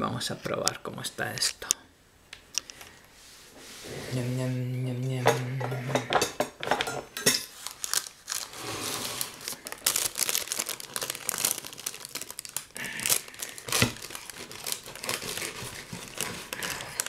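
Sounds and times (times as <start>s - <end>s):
baking paper crinkling: 7.4s - 17.0s.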